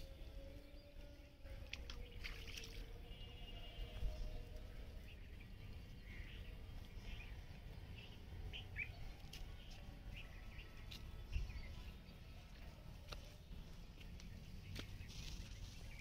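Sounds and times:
small birds chirping: 0:03.6 - 0:16.0
steady low rumble: 0:03.9 - 0:16.0.

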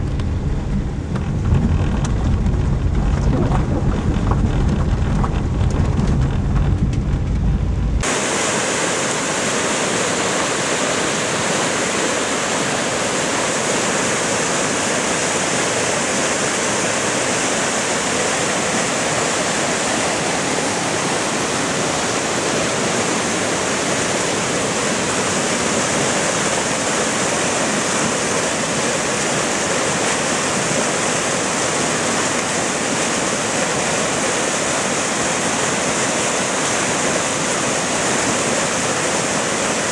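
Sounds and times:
car driving on wet road: 0:00.0 - 0:08.2
floodwater rushing: 0:00.0 - 0:39.9.

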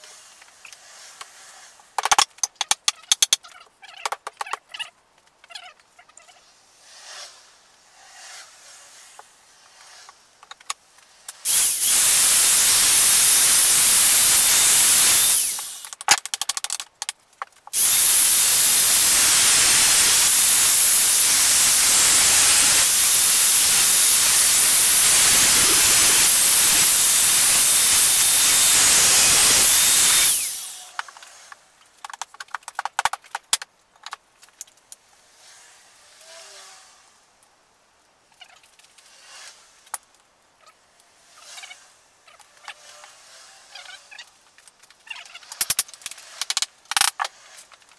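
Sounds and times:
angle grinder cutting steel: 0:11.4 - 0:15.9, 0:17.8 - 0:31.0.

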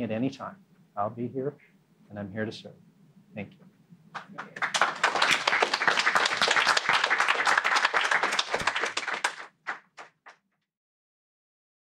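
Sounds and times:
audience applauding: 0:04.2 - 0:10.4.

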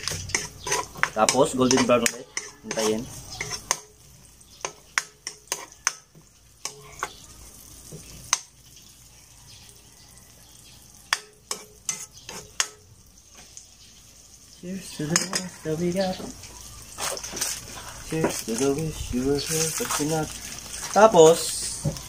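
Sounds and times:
metal spatula scraping a wok: 0:00.0 - 0:04.0, 0:04.6 - 0:06.0, 0:06.6 - 0:08.3, 0:11.2 - 0:12.8, 0:16.9 - 0:18.8
quiet oil sizzle: 0:00.0 - 0:22.0.

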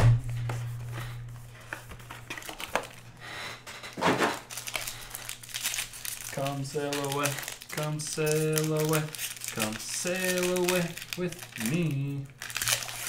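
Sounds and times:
low hum: 0:00.0 - 0:04.0
card pack wrappers crinkling: 0:01.6 - 0:13.0.

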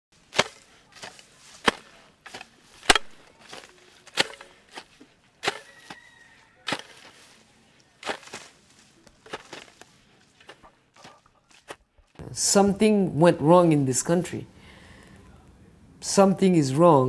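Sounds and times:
hoe chopping into soil: 0:00.2 - 0:07.4, 0:08.0 - 0:11.8.

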